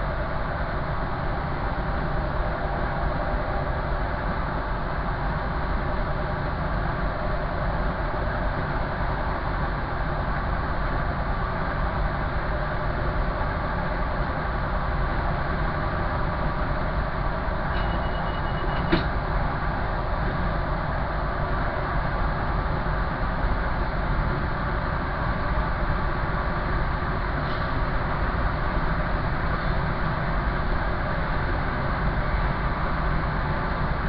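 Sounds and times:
train engine at speed: 0.0s - 34.0s
train wheels on rail: 0.0s - 34.0s
short high beep: 17.8s - 18.9s.

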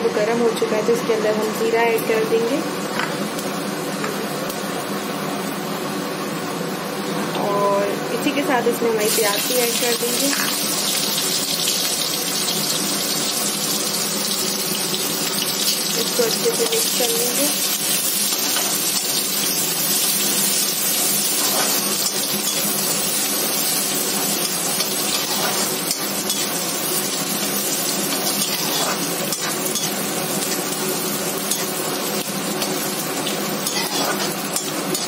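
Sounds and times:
onions sizzling in oil: 0.2s - 35.0s
spatula scraping pan: 24.5s - 26.5s, 28.2s - 30.0s, 33.6s - 35.0s.

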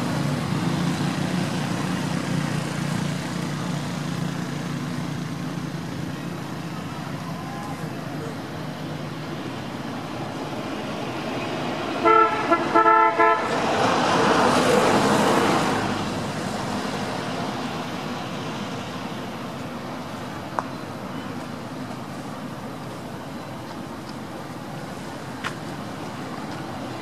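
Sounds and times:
traffic hum: 0.0s - 27.0s
vehicle passing: 10.1s - 19.1s
vehicle horn toots: 12.0s - 13.6s.

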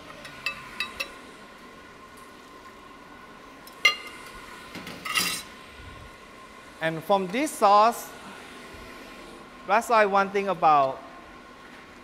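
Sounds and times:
kitchenware clinking: 4.8s - 5.5s.

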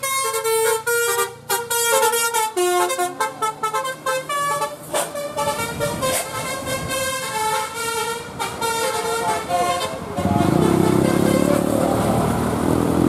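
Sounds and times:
musical bus horn melody: 0.0s - 12.0s
diesel bus engine revving: 9.3s - 13.0s.

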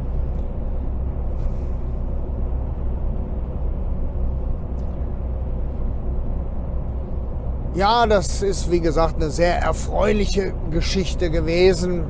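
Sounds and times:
lorry engine and road noise: 0.0s - 12.0s.

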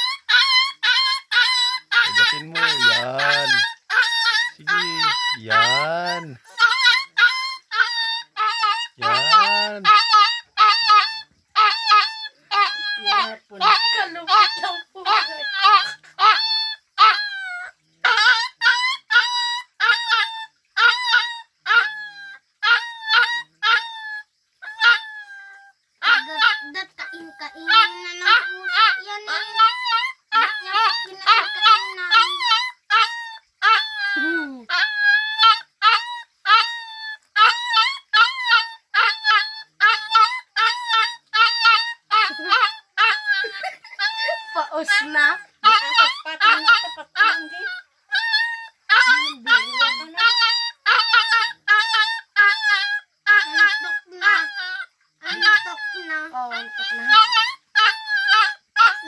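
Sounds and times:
young dog crying and yelping: 0.0s - 59.0s.

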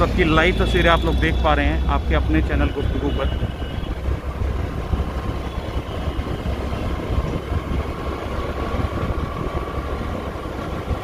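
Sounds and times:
vehicle running: 0.0s - 11.0s
wind buffeting microphone: 3.3s - 11.0s.

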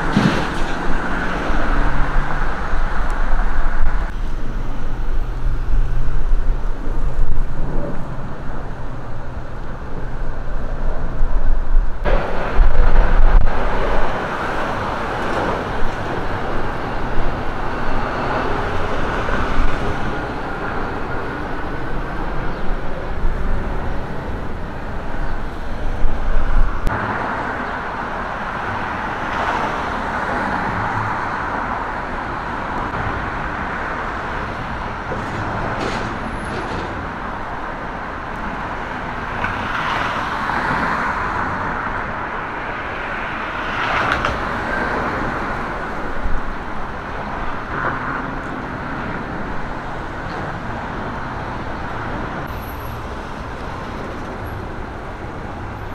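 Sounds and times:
cars driving past: 0.0s - 11.2s, 12.0s - 55.9s
heavy low rumble: 0.0s - 18.1s
steady traffic roar: 0.0s - 55.9s.

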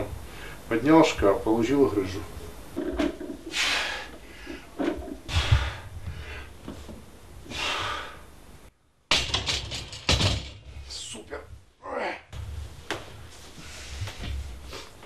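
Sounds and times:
hard breathing: 3.4s - 6.6s, 7.4s - 8.4s, 13.5s - 15.0s.

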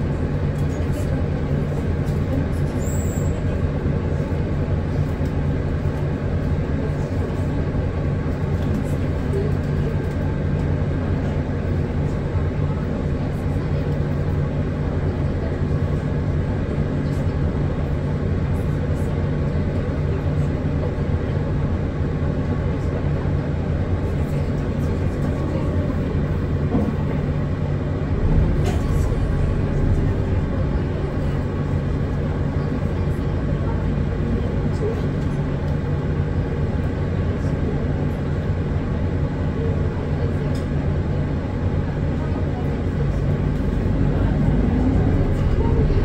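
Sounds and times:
bus engine and road hum: 0.0s - 46.0s
low rumble: 27.3s - 33.3s, 43.0s - 46.0s.

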